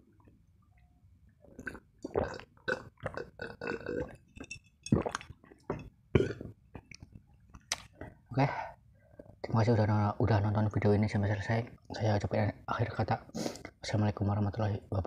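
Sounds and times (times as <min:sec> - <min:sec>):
person gulping a drink: 0:01.4 - 0:08.1
glass clinking: 0:04.0 - 0:05.9.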